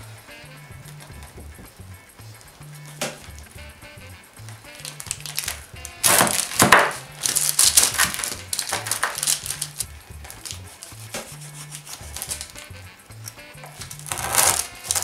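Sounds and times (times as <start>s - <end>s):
background music: 0.0s - 15.0s
knife cutting through crisp crust: 10.4s - 12.5s, 13.8s - 15.0s.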